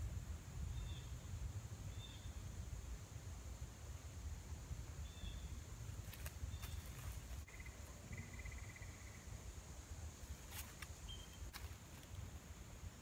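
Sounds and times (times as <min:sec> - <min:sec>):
high insect hum: 0:00.0 - 0:13.0
bird chirps: 0:06.5 - 0:09.3, 0:11.0 - 0:11.5.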